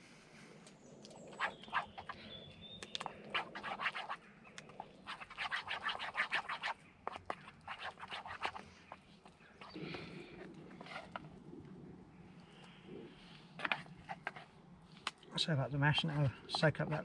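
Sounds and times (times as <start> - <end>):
wooden spoon scraping pan: 10.8 - 11.2.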